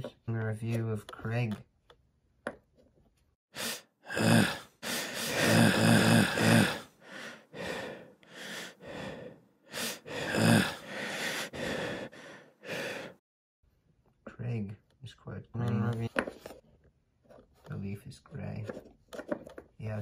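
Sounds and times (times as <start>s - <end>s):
person making breathy vocal noises: 3.6s - 13.2s
low voiced grunt: 4.1s - 6.9s, 10.1s - 10.8s.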